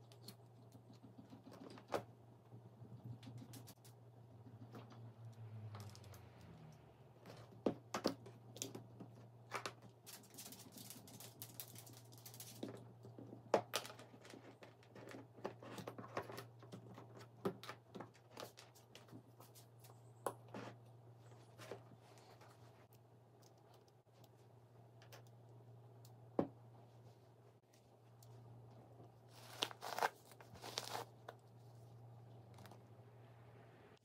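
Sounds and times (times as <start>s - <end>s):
small parts and tools clicking: 22.9s - 26.2s.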